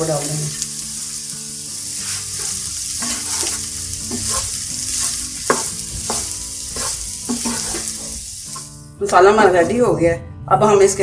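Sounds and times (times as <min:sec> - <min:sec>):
oil sizzling: 0:00.0 - 0:09.0
wooden spatula scraping a pan: 0:02.0 - 0:08.7.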